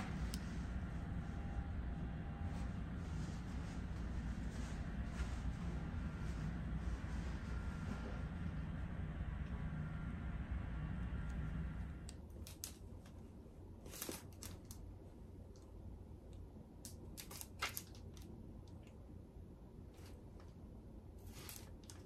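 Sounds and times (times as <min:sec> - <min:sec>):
low hum: 0:00.0 - 0:17.4
book pages flipping: 0:13.8 - 0:14.9, 0:21.2 - 0:22.0.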